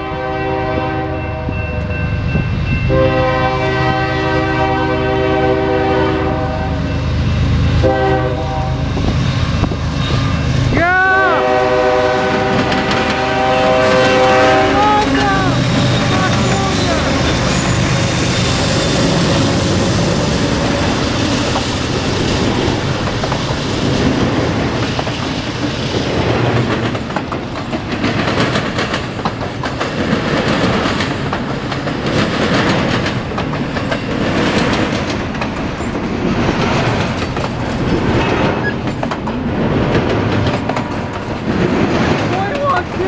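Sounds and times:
diesel locomotives passing: 0.0s - 43.0s
train wheels clattering over rail joints: 12.3s - 43.0s.

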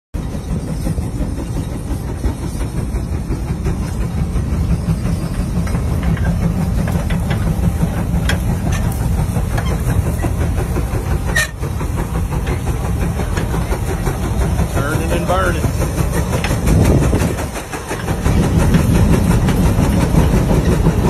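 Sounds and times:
steam traction engine rumbling: 0.2s - 21.0s
metallic clanks of plow and chain: 5.2s - 10.5s, 11.2s - 11.8s.

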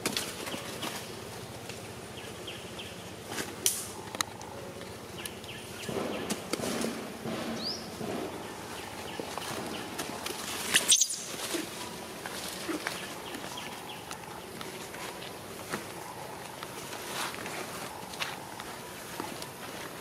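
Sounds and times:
faint insect hum: 0.1s - 20.0s
rustling and scuffing: 5.9s - 20.0s.

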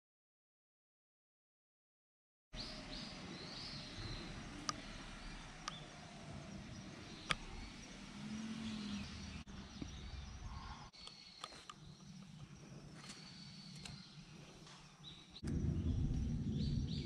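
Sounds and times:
bird calls: 2.6s - 17.0s
sharp clicks: 5.6s - 5.8s
low background rumble: 15.4s - 17.0s.

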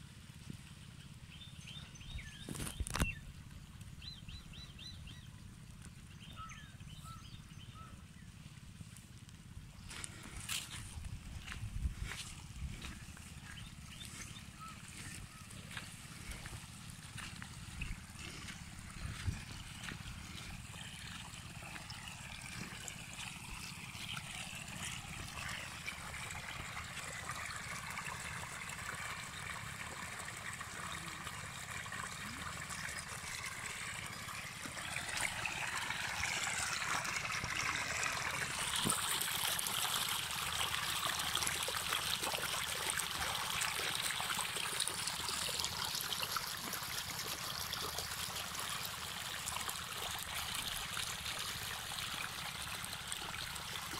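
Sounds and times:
water gushing from hose: 10.1s - 53.9s.

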